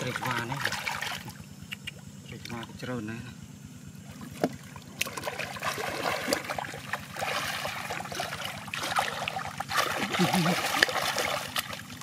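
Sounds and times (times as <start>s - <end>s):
hands splashing in shallow water: 5.0s - 12.0s.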